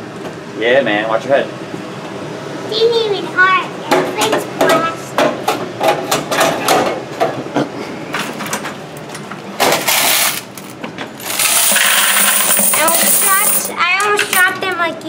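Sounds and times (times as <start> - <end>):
coins clicking and clinking: 9.8 - 14.6
rush of coins pouring: 11.3 - 13.7.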